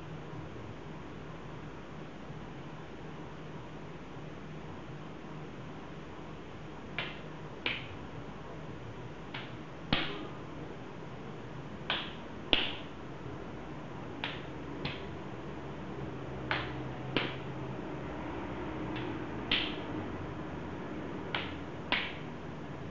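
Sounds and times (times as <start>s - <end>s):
open-hand slaps on face: 7.0s - 8.0s, 9.3s - 10.3s, 11.9s - 12.9s, 14.2s - 15.1s, 16.5s - 17.5s, 19.0s - 19.8s, 21.3s - 22.2s.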